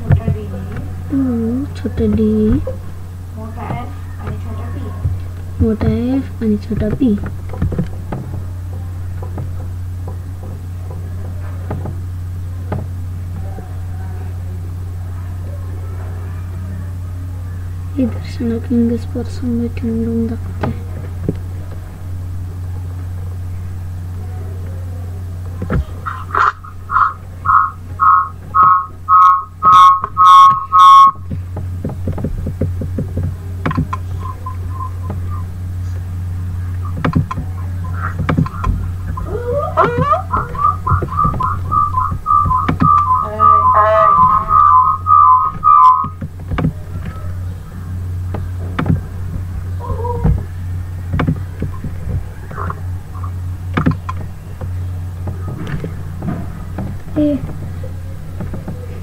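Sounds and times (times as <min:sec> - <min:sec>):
steady low hum: 0:00.0 - 0:59.0
scattered clicks: 0:36.7 - 0:39.2.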